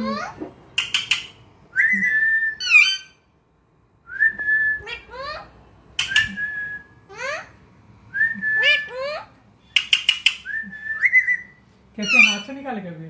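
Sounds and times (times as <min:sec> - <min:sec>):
parakeet whistling: 0:00.8 - 0:03.2, 0:06.0 - 0:07.3, 0:08.2 - 0:12.5.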